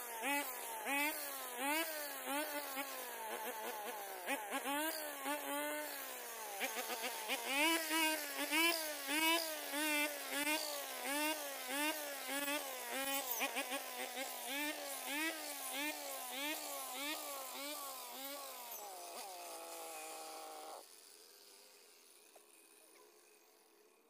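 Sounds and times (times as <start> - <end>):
brush cutter engine buzzing: 0.0 - 24.0.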